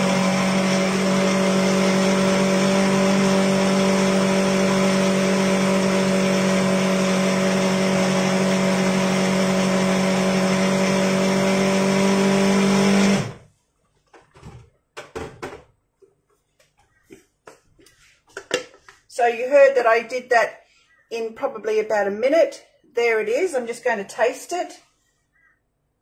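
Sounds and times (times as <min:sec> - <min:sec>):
food processor running: 0:00.0 - 0:13.5.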